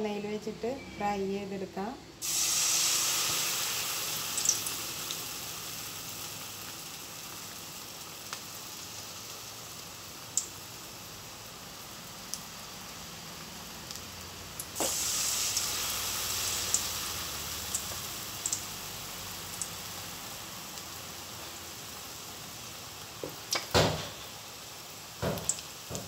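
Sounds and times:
deep-frying sizzle in oil: 2.2 - 26.0
knocks: 25.2 - 26.0.

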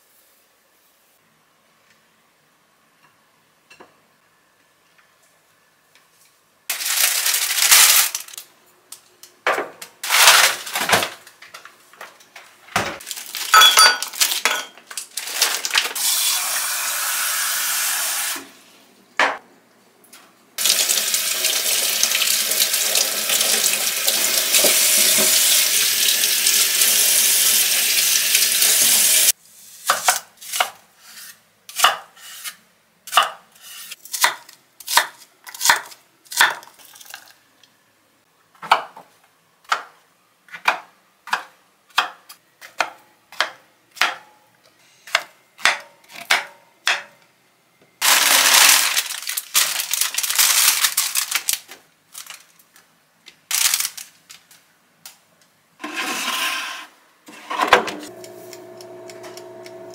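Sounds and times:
kitchen things clattering: 9.5 - 16.0, 57.3 - 58.1
tap running: 57.7 - 59.9.

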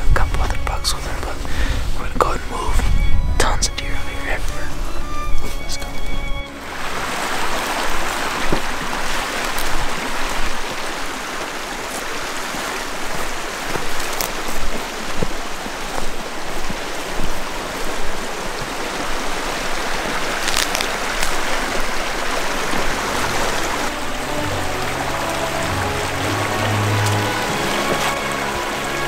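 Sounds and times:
creek running over rocks: 0.0 - 29.0
footsteps snapping through brush: 9.4 - 10.2, 11.9 - 18.8, 19.7 - 22.8.

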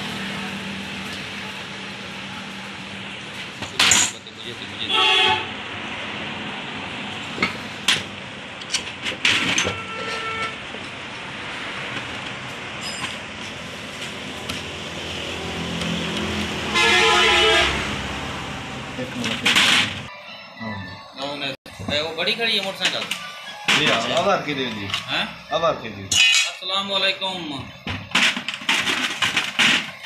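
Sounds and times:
traffic noise: 0.0 - 30.0
vehicle horn: 4.8 - 5.6, 9.6 - 10.6, 16.6 - 18.4.

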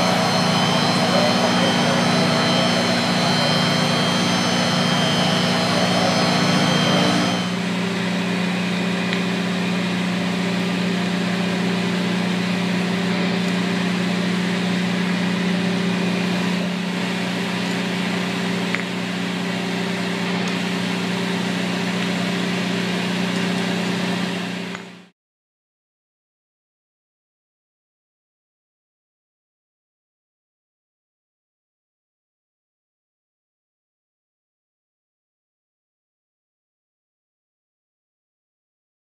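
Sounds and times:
floor grinder whining: 0.0 - 25.0
low machine hum: 0.0 - 25.1.

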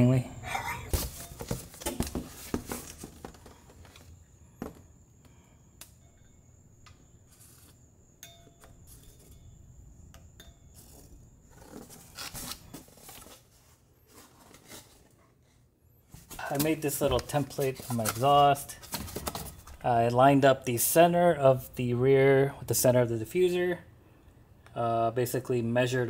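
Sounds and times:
faint high whine: 0.0 - 14.9.

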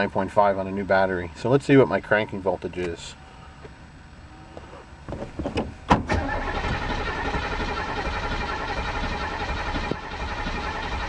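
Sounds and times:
starter motor cranking engine: 6.1 - 11.0.

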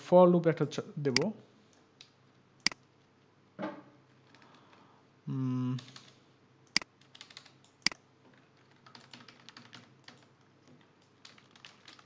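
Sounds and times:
computer keyboard typing: 5.8 - 12.0.

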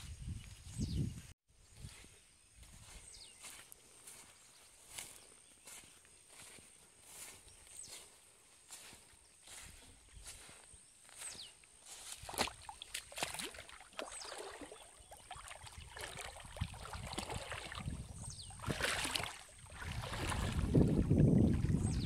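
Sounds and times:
river water splashing: 11.3 - 22.0.

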